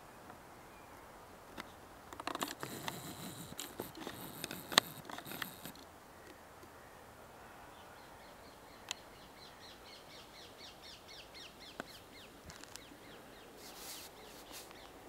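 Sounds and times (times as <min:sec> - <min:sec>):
camera handling rustling: 0:02.2 - 0:05.8.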